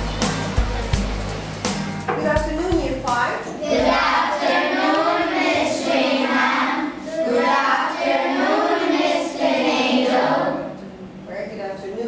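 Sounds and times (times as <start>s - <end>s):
children singing in unison: 3.6s - 10.8s.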